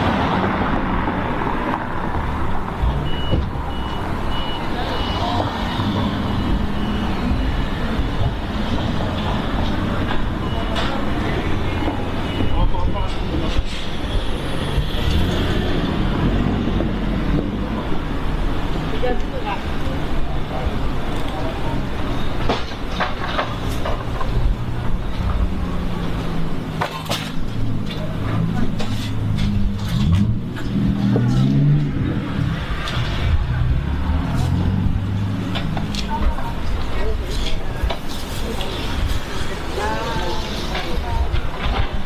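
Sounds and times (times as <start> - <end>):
vehicle engines passing: 0.0 - 42.0
faint reversing alarm beeps: 3.0 - 7.8, 10.4 - 13.3.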